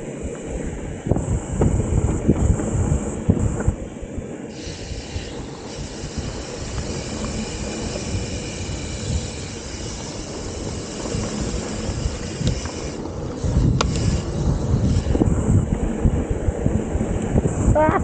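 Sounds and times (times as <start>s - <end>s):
wind buffeting microphone: 0.0s - 18.0s
tyres rumbling on dirt: 5.2s - 18.0s.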